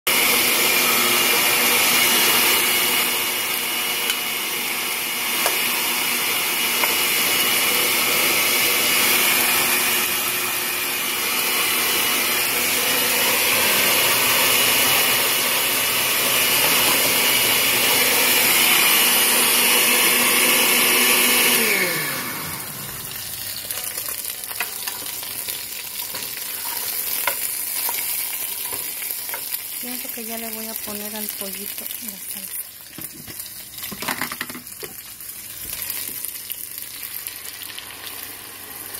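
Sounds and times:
electric motor humming and whining: 0.1 - 25.0
motor winding down: 0.4 - 23.7
chicken sizzling in oil: 21.2 - 38.9.

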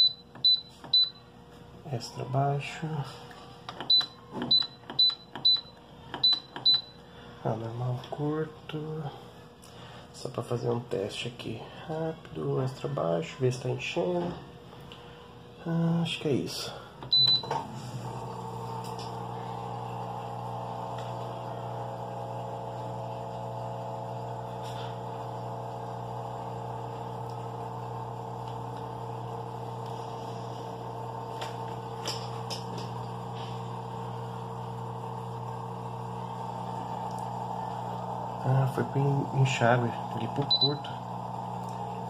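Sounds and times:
washing machine beep: 0.0 - 1.3, 3.8 - 7.0, 17.1 - 23.0, 37.3 - 41.4
water inlet valve hum: 17.1 - 42.0.

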